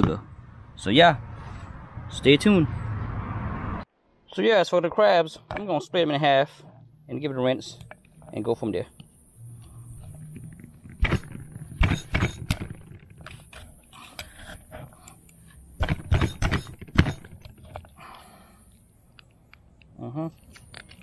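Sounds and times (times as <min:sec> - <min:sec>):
low hum: 0:06.6 - 0:17.6.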